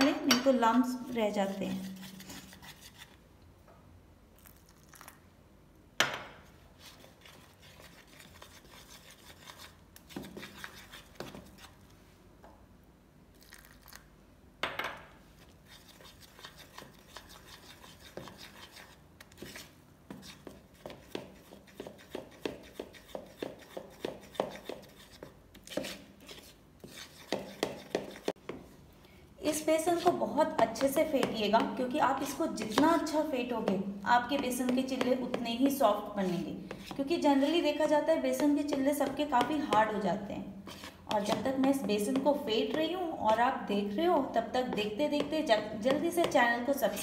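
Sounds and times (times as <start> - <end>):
spoon beating batter: 0.0 - 3.2, 6.8 - 11.8, 15.4 - 28.7, 29.5 - 40.0, 40.6 - 43.6, 44.2 - 47.0
metal spoon scraping plastic bowl: 15.7 - 28.4, 29.5 - 37.8.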